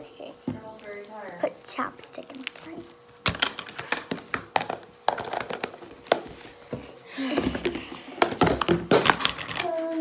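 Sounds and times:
plastic containers rustling: 0:02.2 - 0:10.0
plastic containers tapping on wood: 0:03.3 - 0:09.7.

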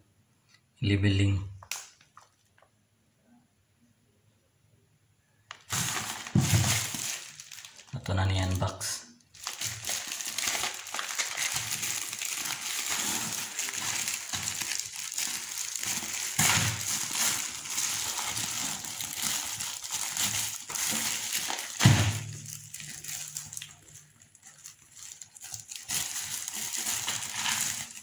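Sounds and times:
sharp plastic crunch: 0:01.6 - 0:02.5, 0:05.5 - 0:08.7, 0:09.4 - 0:28.0
plastic crinkling and rustling: 0:01.7 - 0:02.7, 0:05.5 - 0:28.0
plastic mailer being torn open: 0:05.5 - 0:08.7, 0:09.4 - 0:28.0.

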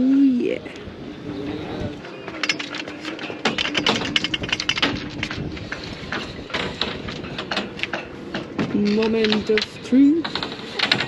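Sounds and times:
clatter of clicks and knocks: 0:02.3 - 0:11.0.

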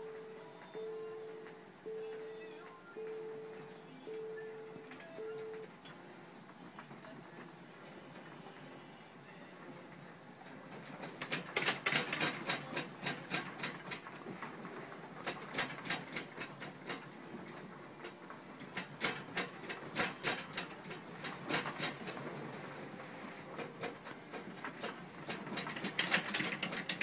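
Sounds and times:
objects rattling and clattering: 0:10.7 - 0:22.7, 0:23.5 - 0:27.0.

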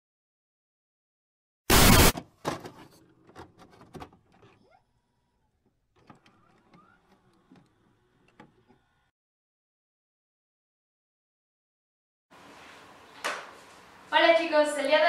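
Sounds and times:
electronic glitch clicks and crackles: 0:01.7 - 0:02.2.

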